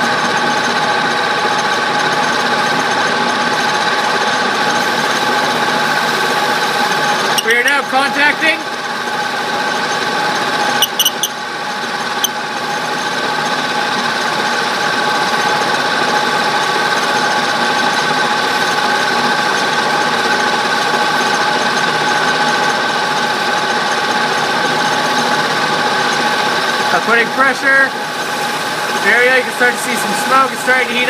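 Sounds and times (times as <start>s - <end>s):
metal-on-metal rubbing with whine: 10.8s - 11.3s
sharp clicks: 10.8s - 11.3s.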